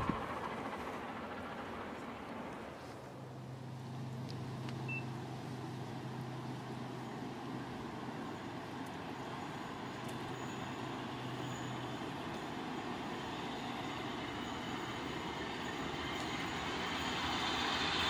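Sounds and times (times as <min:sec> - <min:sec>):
distant steam train rushing: 0:00.0 - 0:18.0.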